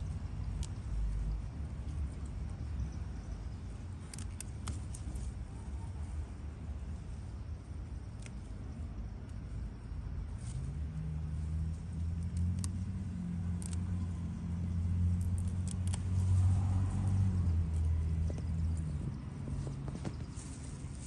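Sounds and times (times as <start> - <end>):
herb stems snapping and rustling: 0.0 - 2.8, 3.8 - 5.5, 8.0 - 9.4, 10.3 - 21.0
low motor rumble: 0.0 - 21.0.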